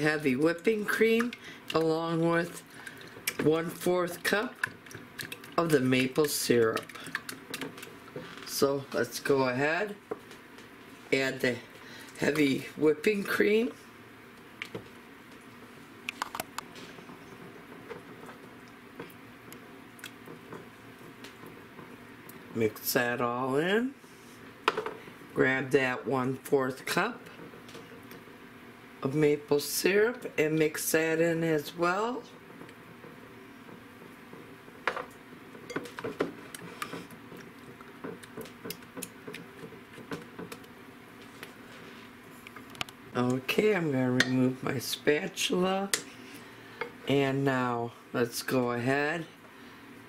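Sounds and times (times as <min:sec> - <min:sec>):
whisk beating liquid in bowl: 0:02.6 - 0:08.0.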